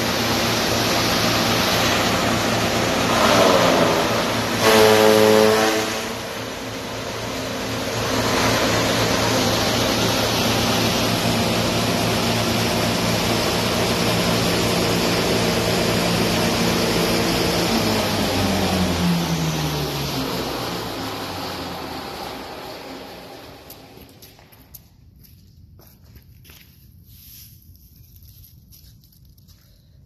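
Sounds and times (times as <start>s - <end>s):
chaff cutter motor hum: 0.0s - 24.2s
loud rushing hiss of chopping: 0.6s - 6.4s.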